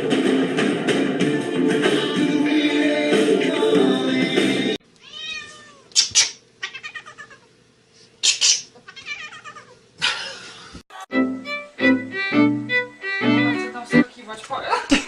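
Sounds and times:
cat meowing and yowling: 5.0 - 5.9, 6.6 - 7.5, 8.9 - 9.8.

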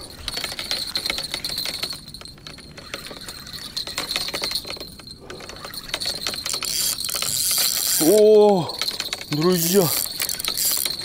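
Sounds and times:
fishing reel clicking rapidly: 3.1 - 11.0.

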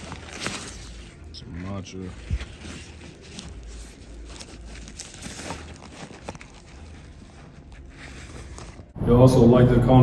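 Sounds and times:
fabric rustling: 0.0 - 9.0.

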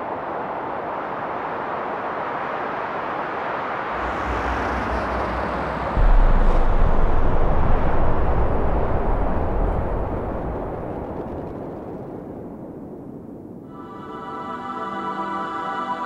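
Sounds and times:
wind-like wash of noise: 0.0 - 16.0
deep bass rumble: 4.0 - 11.7.

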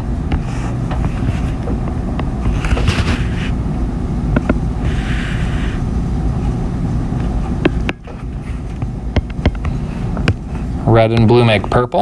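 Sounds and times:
stylus scratching on glass screen: 0.4 - 1.6.

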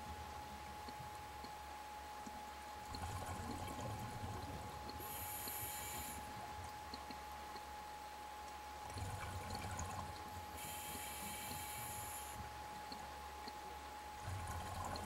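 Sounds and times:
faint steady whine: 0.0 - 15.0
exhaled bubbles rumbling underwater: 2.9 - 5.0, 14.2 - 15.0
regulator inhalation hiss: 5.0 - 6.2, 10.6 - 12.4.

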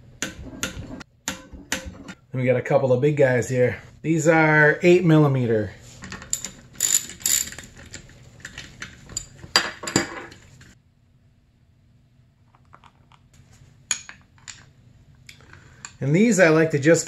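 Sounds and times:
ratchet and bolts clinking: 6.1 - 10.2.

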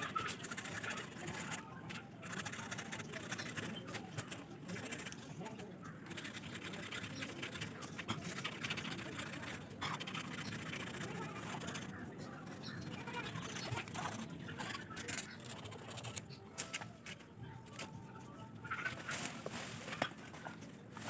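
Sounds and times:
bamboo stalks rustling and knocking: 18.7 - 21.0.

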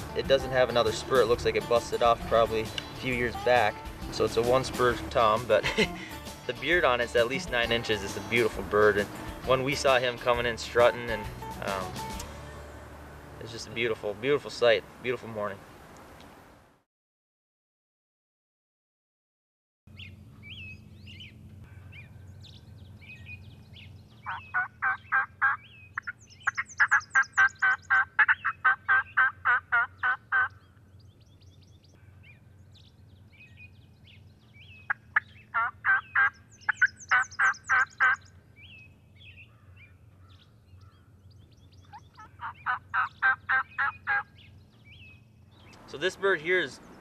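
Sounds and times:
songbird chirps: 0.0 - 16.4, 19.9 - 47.0
turkey yelping: 24.1 - 30.8, 34.6 - 38.3, 41.8 - 45.0.

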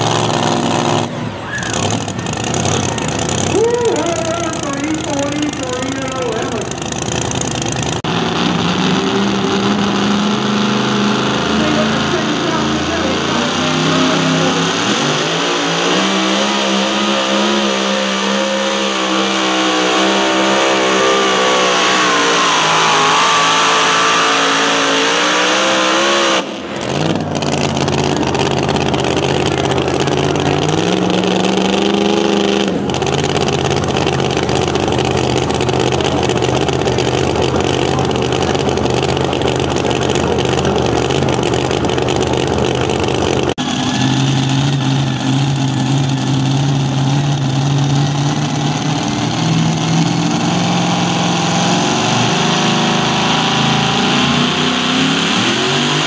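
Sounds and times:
engine idling with short rev: 0.0 - 10.4, 25.9 - 54.9
supercharged engine at full throttle: 0.0 - 56.0.

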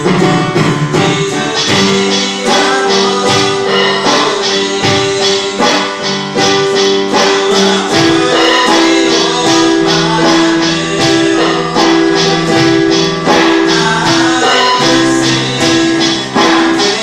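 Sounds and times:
electric bass guitar: 0.0 - 17.0
electric keyboard chords: 0.0 - 17.0
electronic drum kit beat: 0.0 - 17.0.

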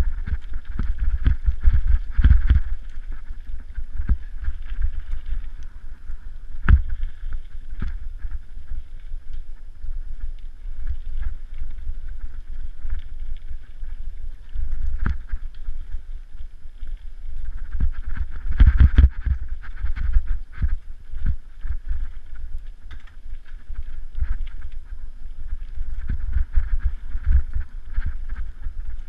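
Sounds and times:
bike knocking and rattling: 0.0 - 5.6, 6.4 - 9.5
wind buffeting microphone: 0.0 - 29.0.

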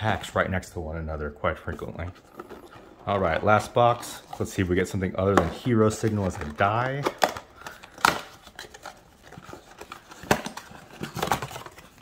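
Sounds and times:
cardboard rustling: 1.5 - 12.0.

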